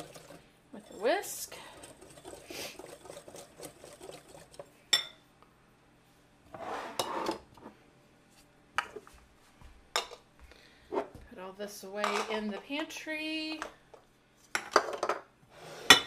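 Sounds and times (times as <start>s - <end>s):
wire whisk stirring in glass bowl: 0.0s - 4.7s
whisk clinking against bowl: 0.0s - 5.1s.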